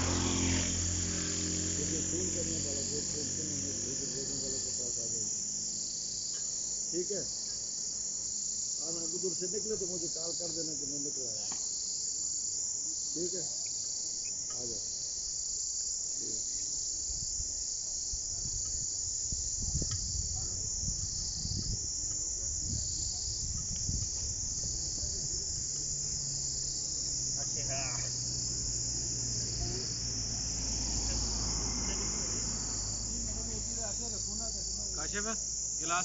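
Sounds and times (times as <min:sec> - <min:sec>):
high-pitched insect chorus: 0:00.0 - 0:36.0.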